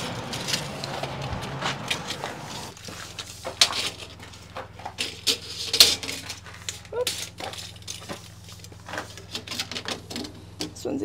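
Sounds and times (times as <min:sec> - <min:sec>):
footsteps on gritty concrete: 0:00.0 - 0:05.2, 0:06.0 - 0:09.3.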